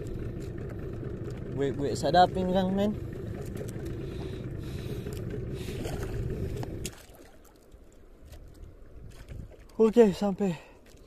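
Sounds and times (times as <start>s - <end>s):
boat engine rumbling: 0.0s - 11.0s.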